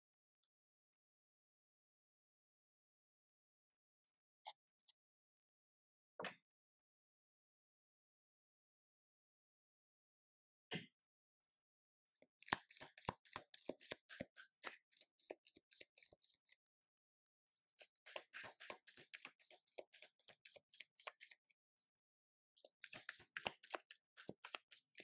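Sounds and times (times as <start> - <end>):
cards being shuffled: 12.4 - 16.2, 18.0 - 21.4, 22.8 - 25.0.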